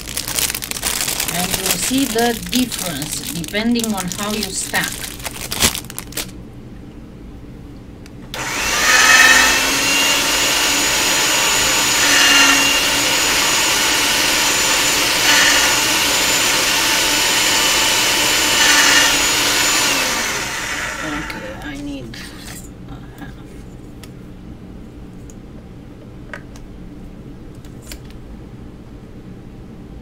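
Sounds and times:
electric motor whining: 8.4s - 21.7s.

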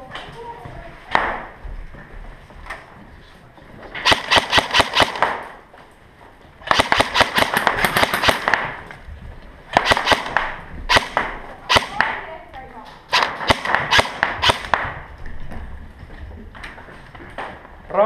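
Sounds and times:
airsoft guns firing: 4.0s - 5.6s, 6.6s - 8.9s, 9.7s - 12.4s, 13.0s - 15.1s.

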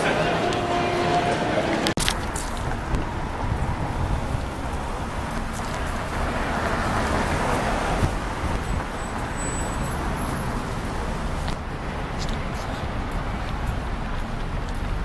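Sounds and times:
low rumble of traffic: 0.0s - 15.0s
car passing close by: 2.6s - 11.6s.

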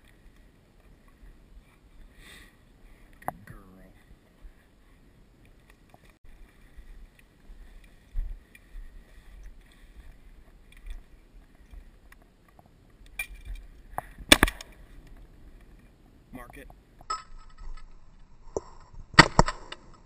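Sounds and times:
footsteps through dry grass: 3.8s - 12.8s.

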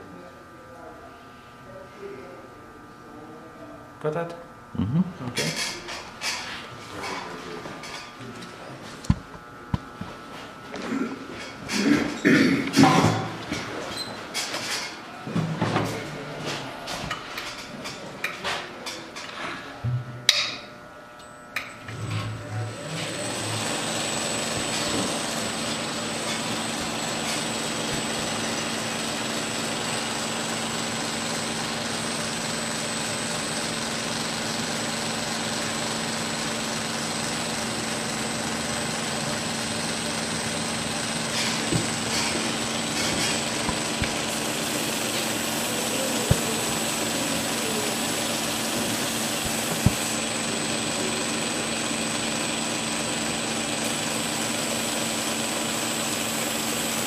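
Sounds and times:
belt grinder whirring: 22.7s - 57.0s
blade grinding on belt: 41.3s - 50.5s.

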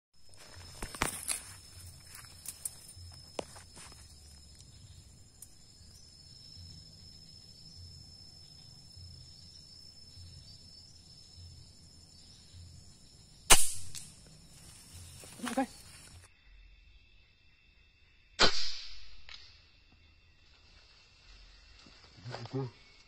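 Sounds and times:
air rifle shot: 13.5s - 14.1s, 18.4s - 19.4s.

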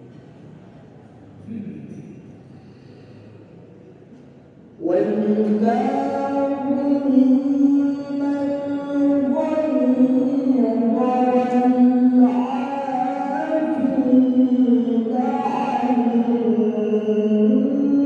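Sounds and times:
man reciting melodically: 4.7s - 18.0s.

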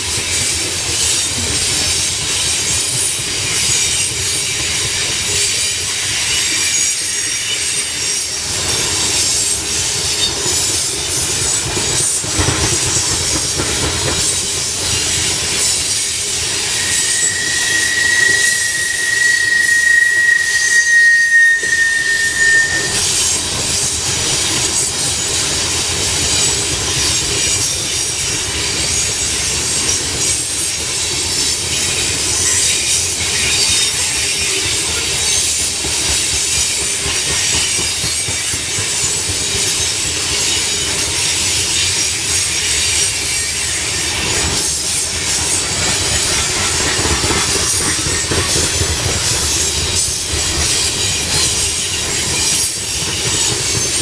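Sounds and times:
freight train rolling past: 0.0s - 54.0s
steel wheels on rails: 0.0s - 54.0s
high thin wheel squeal: 13.1s - 24.9s, 40.3s - 54.0s.

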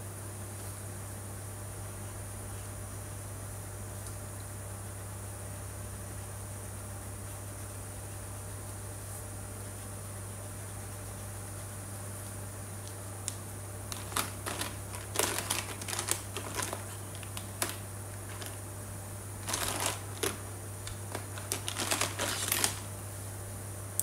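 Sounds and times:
plastic pens clicking and clattering: 13.9s - 18.6s, 21.0s - 22.8s.

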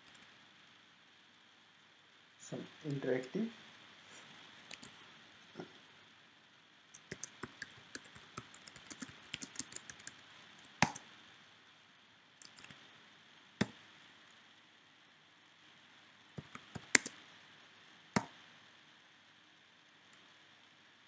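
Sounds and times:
keyboard typing: 4.7s - 5.0s, 7.0s - 11.0s, 12.4s - 12.8s, 16.4s - 17.2s.

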